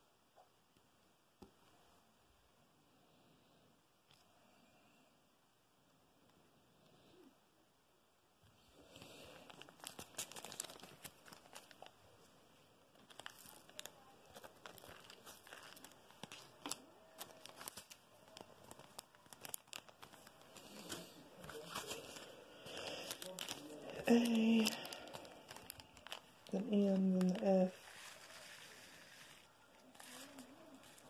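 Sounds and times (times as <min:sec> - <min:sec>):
thin plastic crinkling: 0:08.6 - 0:31.0.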